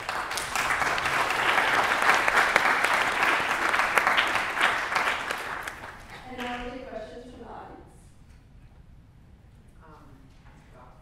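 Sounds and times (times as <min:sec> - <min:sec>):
audience applause: 0:00.0 - 0:06.5.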